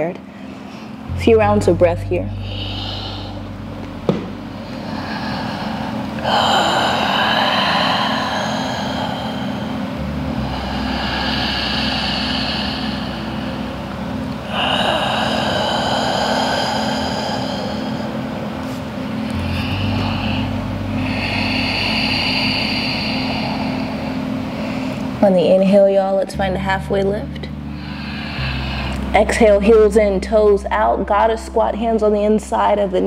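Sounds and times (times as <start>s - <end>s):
steady low hum: 0.0s - 33.0s
slow deep breathing: 2.3s - 25.2s, 27.5s - 29.2s.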